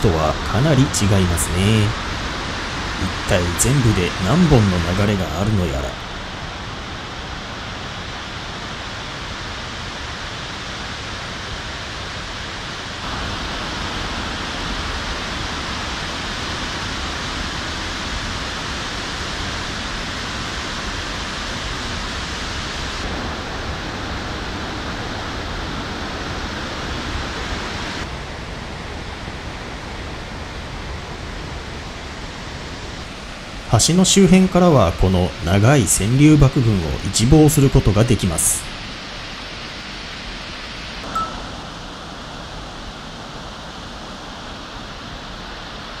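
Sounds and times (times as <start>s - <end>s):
waterfall rushing: 0.0s - 28.1s, 32.6s - 46.0s.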